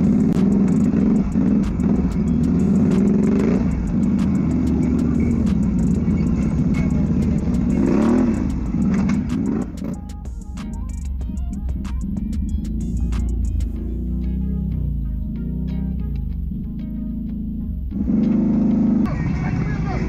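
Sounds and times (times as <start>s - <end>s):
off-road vehicle engine: 0.0s - 20.0s
sharp clicks and knocks: 6.8s - 13.8s.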